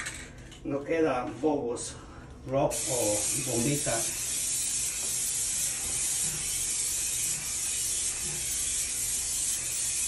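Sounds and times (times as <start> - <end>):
spray can hissing: 2.7 - 10.0.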